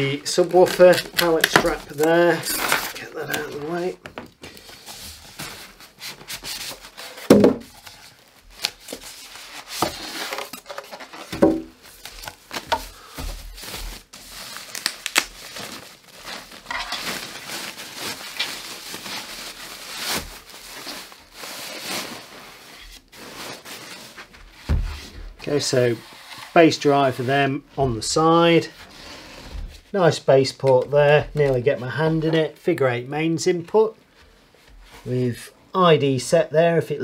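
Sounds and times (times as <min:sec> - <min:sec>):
plastic crinkling: 0:00.3 - 0:25.2.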